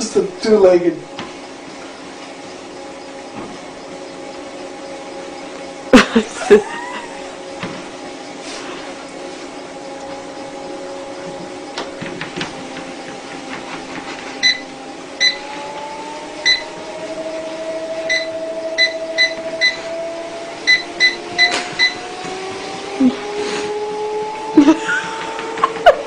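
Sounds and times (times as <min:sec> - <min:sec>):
treadmill motor whining: 0:00.0 - 0:26.0
short electronic beeps: 0:15.2 - 0:15.4, 0:18.1 - 0:19.8, 0:20.7 - 0:22.0.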